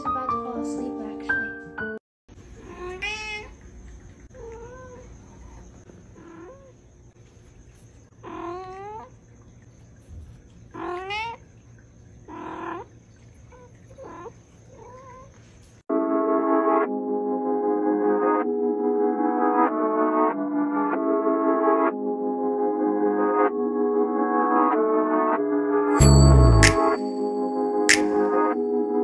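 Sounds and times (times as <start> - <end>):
cat meowing: 2.6 - 3.6, 4.3 - 5.6, 6.2 - 6.7, 8.2 - 9.1, 10.8 - 11.4, 14.0 - 15.3.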